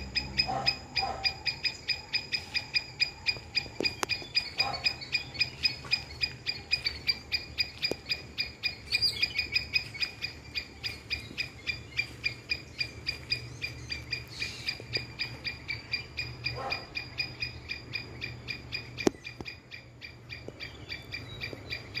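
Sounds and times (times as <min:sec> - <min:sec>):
rhythmic chirping call: 0:00.0 - 0:22.0.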